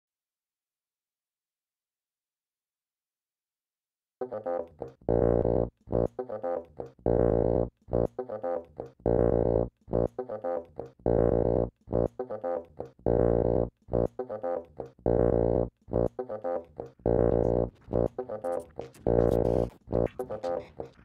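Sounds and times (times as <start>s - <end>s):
looped low electronic tone: 5.0s - 6.1s, 7.0s - 8.1s, 9.0s - 10.1s, 11.0s - 12.1s, 13.0s - 14.1s, 15.0s - 16.1s, 16.8s - 21.0s.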